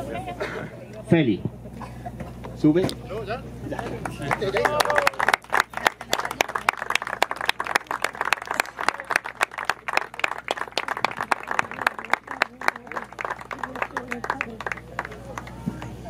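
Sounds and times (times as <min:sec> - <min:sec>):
small group applauding: 0:03.7 - 0:16.0.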